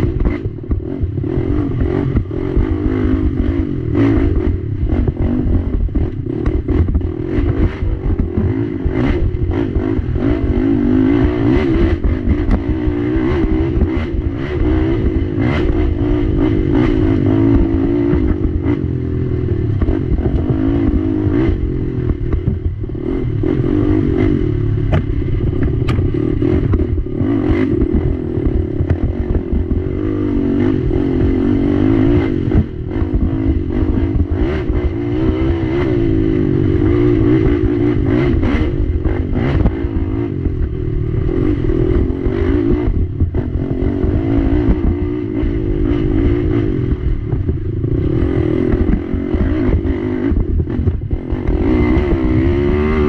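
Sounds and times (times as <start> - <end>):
quad knocking and rattling: 0.0 - 35.5
atv engine revving: 0.0 - 53.0.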